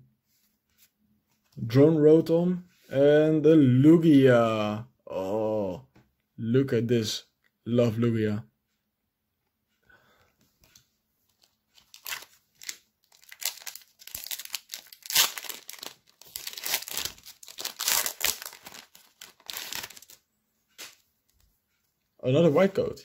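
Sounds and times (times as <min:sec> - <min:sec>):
foil wrapper tearing and crinkling: 0:11.8 - 0:20.2.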